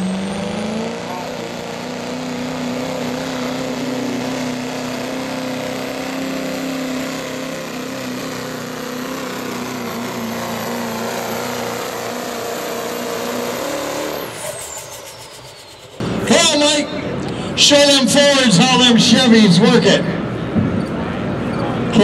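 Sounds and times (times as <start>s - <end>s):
diesel engine at high revs: 0.0s - 22.0s
faint high whistle: 14.4s - 16.0s.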